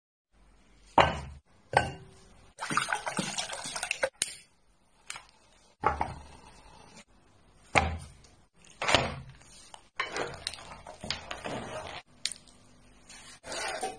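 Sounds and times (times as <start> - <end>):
water splashing into pot: 2.6 - 4.3.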